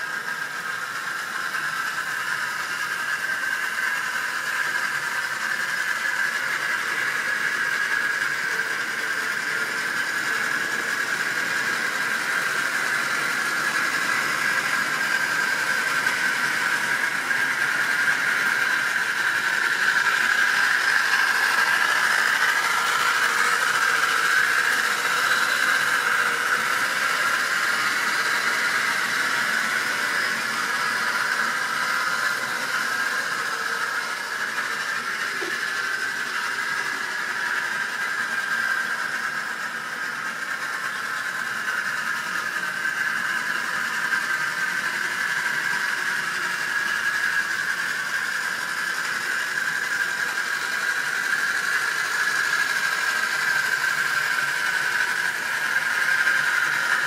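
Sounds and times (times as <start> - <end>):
small electric motor whining: 0.0 - 57.0.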